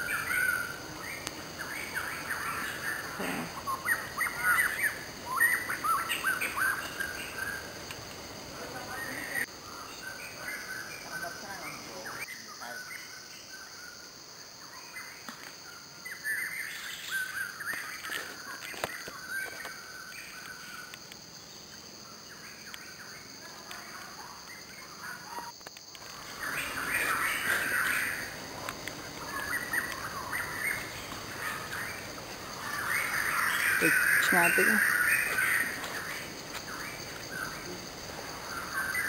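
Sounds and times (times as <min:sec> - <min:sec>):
birds chirping and calling: 0:00.0 - 0:07.8, 0:22.2 - 0:39.0.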